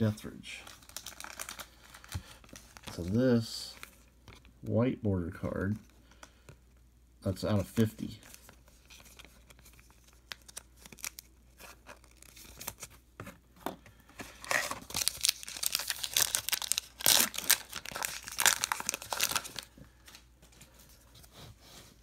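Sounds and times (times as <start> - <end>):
wrapper tearing and crinkling: 0.6 - 3.2, 8.9 - 12.8, 14.4 - 19.7.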